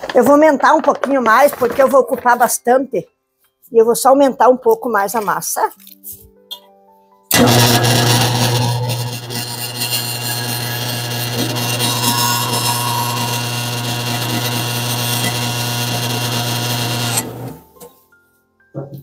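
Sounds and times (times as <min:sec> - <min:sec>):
dough kneading machine humming: 0:07.3 - 0:17.6.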